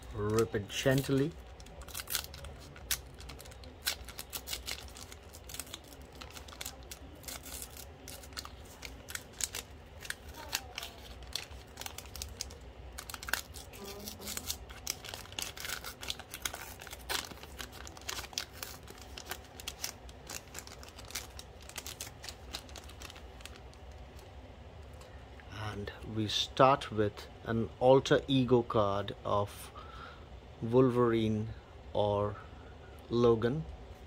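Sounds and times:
wrapper being torn and crinkled: 0.0s - 24.2s.

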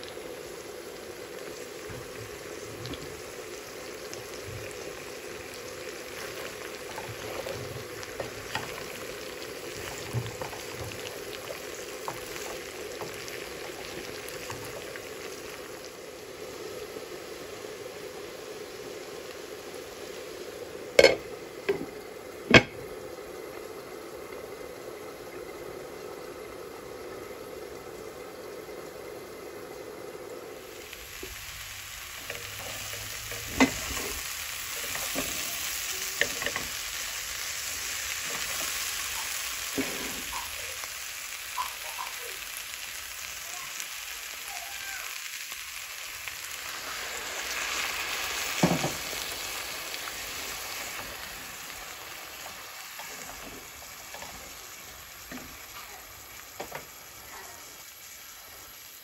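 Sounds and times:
food sizzling in oil: 0.0s - 59.0s
spatula stirring in a pan: 6.0s - 15.0s, 32.1s - 36.9s.

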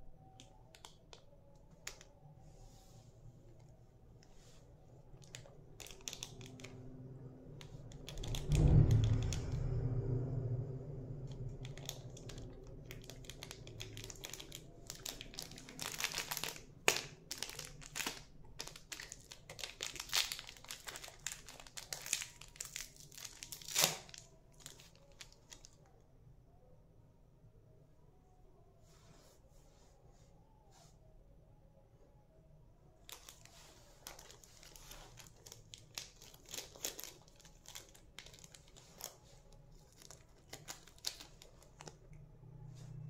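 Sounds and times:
plastic wrapper crinkling: 3.6s - 9.6s, 11.3s - 25.9s, 33.0s - 42.2s.

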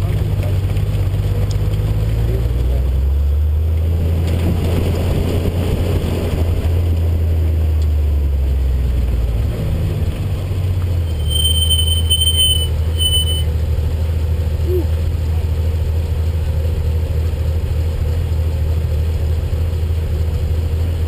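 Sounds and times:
wind and road noise: 0.0s - 17.0s
car engine at low revs: 0.0s - 21.0s
brakes squealing: 10.3s - 13.7s.

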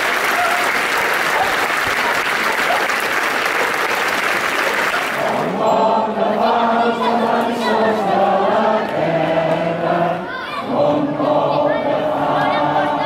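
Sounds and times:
crowd clapping: 0.0s - 5.6s
crowd singing together: 4.8s - 13.0s.

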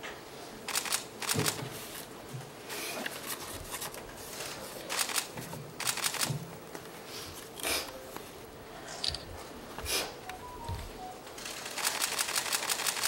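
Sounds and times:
camera shutters firing: 0.7s - 1.6s, 4.9s - 6.3s, 11.4s - 13.0s.

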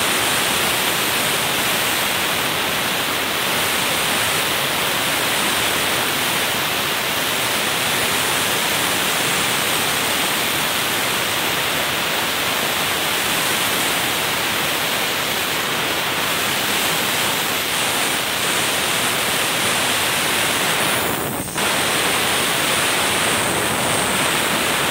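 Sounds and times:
sandblaster hissing: 12.4s - 24.9s.

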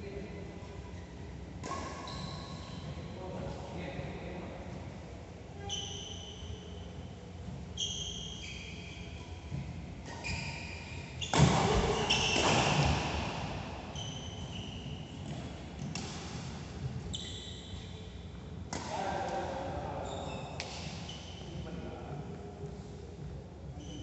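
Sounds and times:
shoes squeaking on court: 0.9s - 3.2s, 5.6s - 16.2s, 16.9s - 18.1s, 19.9s - 21.8s, 23.7s - 24.0s
racket hitting shuttlecock: 11.3s - 13.5s.

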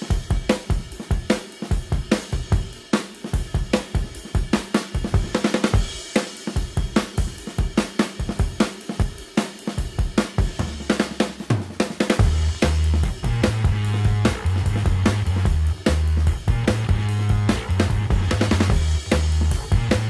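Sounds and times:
drum kit beat: 0.0s - 20.0s.

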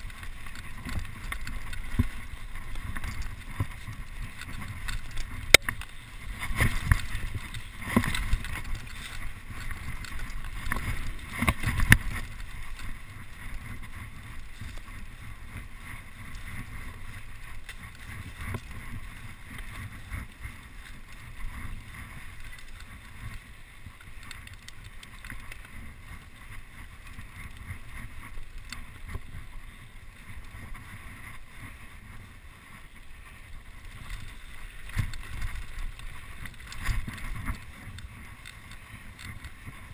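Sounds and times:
bike rattling: 0.0s - 39.9s.

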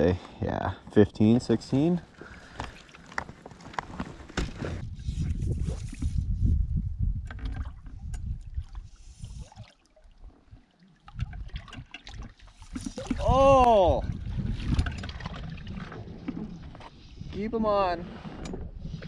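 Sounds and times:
water lapping and gurgling: 2.0s - 6.4s, 7.2s - 19.0s.

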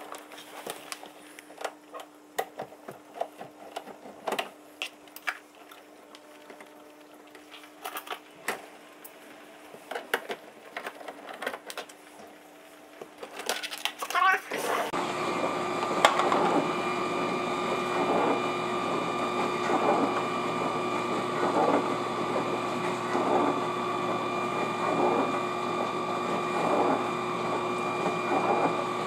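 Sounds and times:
dishwasher humming and swishing: 14.5s - 29.0s.

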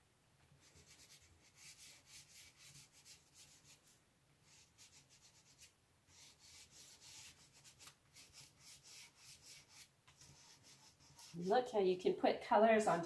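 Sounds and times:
chalk pastel rubbing on paper: 0.6s - 3.8s, 4.4s - 11.6s.

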